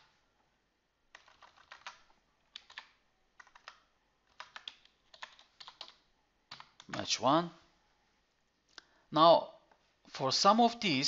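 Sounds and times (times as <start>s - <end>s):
keyboard typing: 1.1s - 7.1s.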